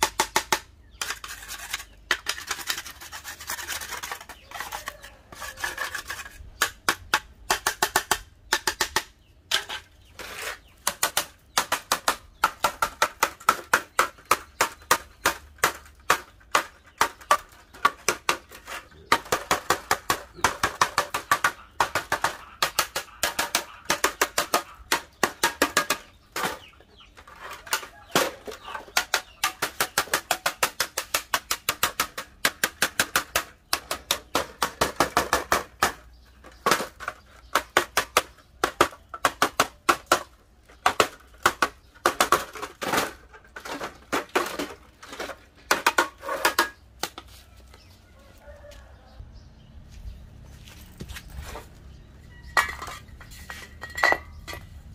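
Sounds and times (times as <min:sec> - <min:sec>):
metal tool scraping rust: 0:00.9 - 0:06.8, 0:52.3 - 0:54.7.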